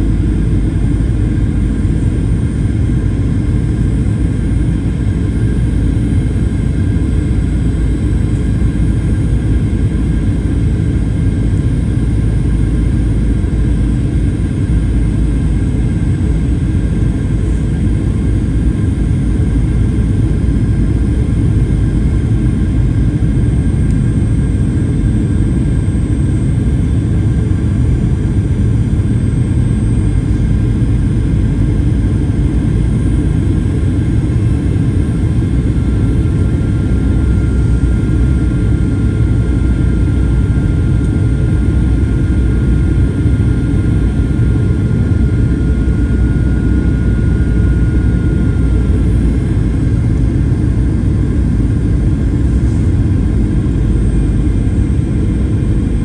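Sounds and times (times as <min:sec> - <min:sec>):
airliner cabin roar: 0:00.0 - 0:56.0
faint thin whine: 0:34.3 - 0:56.0.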